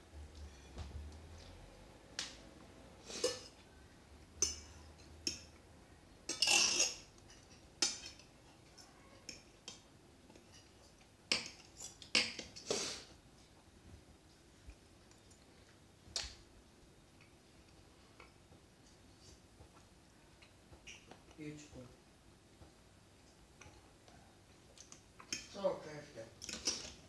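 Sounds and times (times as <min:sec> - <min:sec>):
cutlery clinking on plates: 0:04.4 - 0:05.5, 0:06.3 - 0:08.3.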